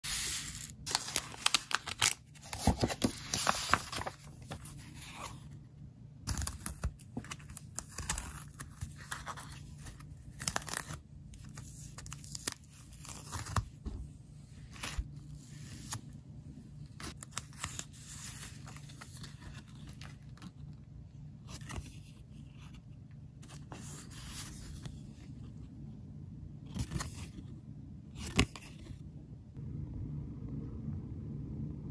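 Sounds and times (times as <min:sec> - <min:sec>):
plastic sleeves rustling: 0:00.1 - 0:05.3
paper envelope being torn open: 0:00.1 - 0:05.4, 0:06.3 - 0:13.7, 0:16.9 - 0:20.6.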